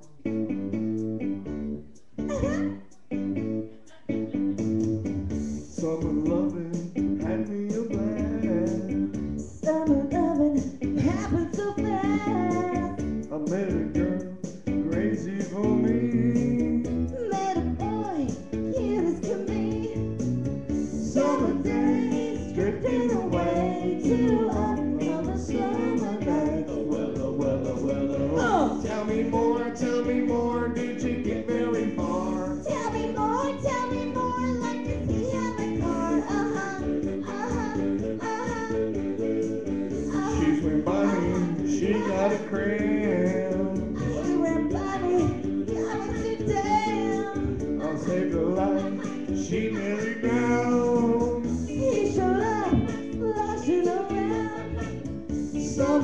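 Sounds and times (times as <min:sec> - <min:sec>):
recorded backing track: 0:00.0 - 0:56.0
man singing: 0:05.7 - 0:09.1, 0:12.5 - 0:17.1, 0:21.0 - 0:32.8, 0:40.2 - 0:45.4, 0:47.8 - 0:52.2, 0:55.6 - 0:56.0
woman singing: 0:09.6 - 0:13.0, 0:17.1 - 0:20.2, 0:21.2 - 0:26.9, 0:32.3 - 0:38.9, 0:40.1 - 0:42.5, 0:43.8 - 0:50.7, 0:51.7 - 0:55.0.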